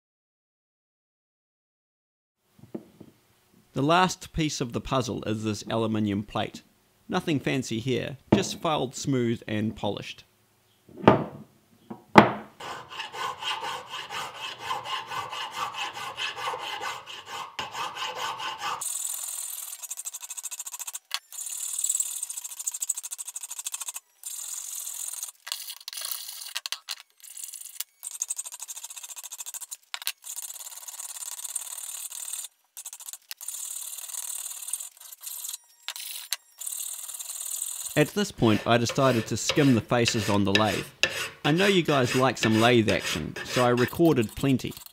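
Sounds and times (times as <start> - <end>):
hand file rasping on metal: 12.6 - 25.3, 27.5 - 35.6, 36.6 - 44.9.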